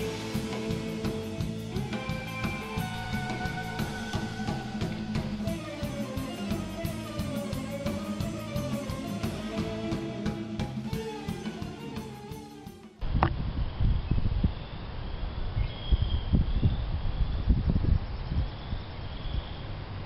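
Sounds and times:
rock music with guitar and drums: 0.0s - 13.0s
wind buffeting microphone: 13.0s - 20.0s.

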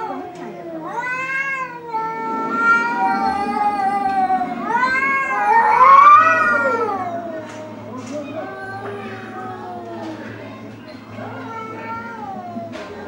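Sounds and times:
cat yowling: 0.0s - 7.6s.

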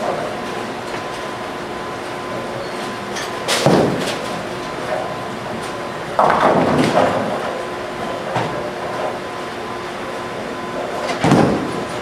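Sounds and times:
bowling balls and pins: 6.0s - 7.6s, 10.9s - 12.0s.

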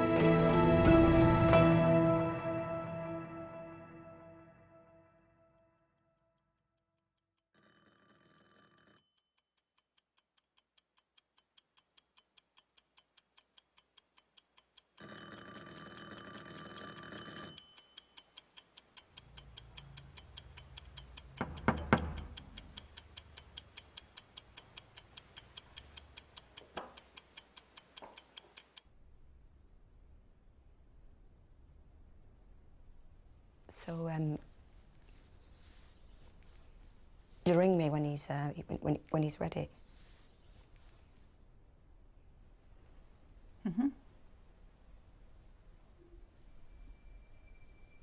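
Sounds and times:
clock ticking: 9.0s - 28.9s.

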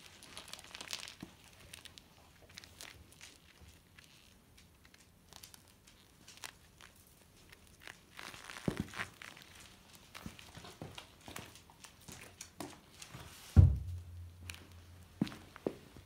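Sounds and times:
bike tyres crinkling on concrete: 0.0s - 13.5s, 14.4s - 16.0s
footsteps on concrete: 10.2s - 16.0s
heavy thump: 13.6s - 14.3s.

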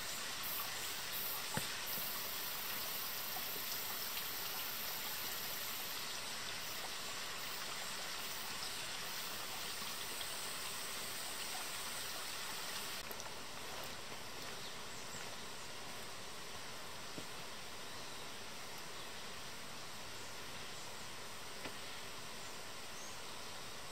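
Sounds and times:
stream flowing: 0.0s - 23.9s.

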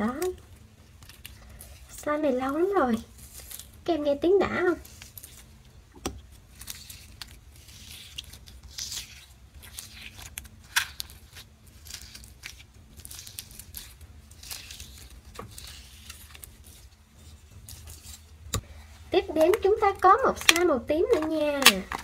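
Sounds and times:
slime crackling and popping: 6.4s - 16.8s.

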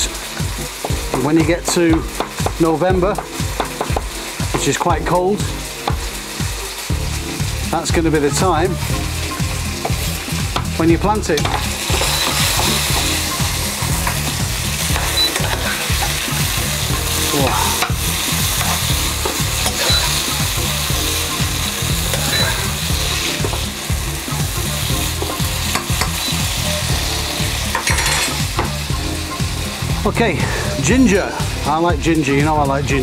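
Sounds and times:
beef sizzling in a wok: 0.0s - 33.0s
utensil scraping and clacking: 18.6s - 20.2s.

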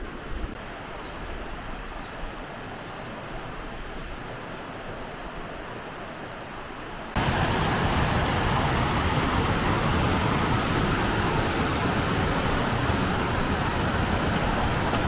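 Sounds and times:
flowing water hiss: 0.0s - 15.0s
wind: 0.0s - 15.0s
water rushing over rocks: 7.1s - 15.0s.

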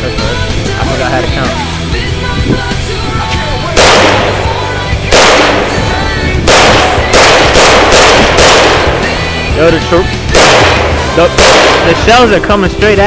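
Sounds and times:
background music: 0.0s - 13.0s
rifle shots: 3.8s - 9.6s, 10.3s - 12.4s.

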